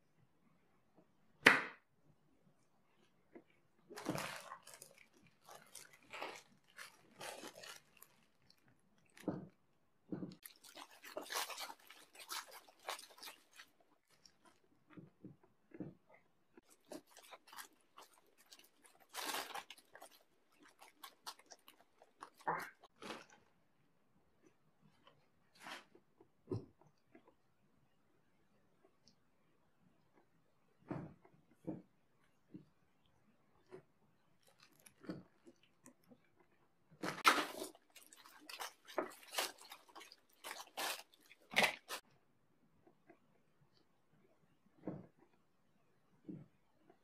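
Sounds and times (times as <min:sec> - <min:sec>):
paper wrapper crinkling: 0:04.0 - 0:09.3, 0:10.3 - 0:14.6, 0:16.6 - 0:23.4, 0:37.2 - 0:42.0
person chewing: 0:04.0 - 0:09.3, 0:10.3 - 0:23.4, 0:34.4 - 0:42.0.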